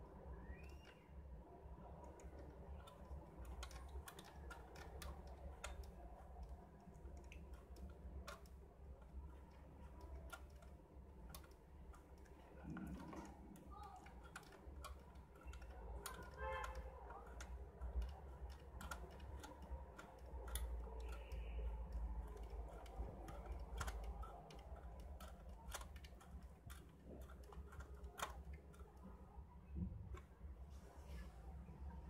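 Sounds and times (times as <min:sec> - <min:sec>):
light clicks on plastic cover: 0:15.4 - 0:22.6.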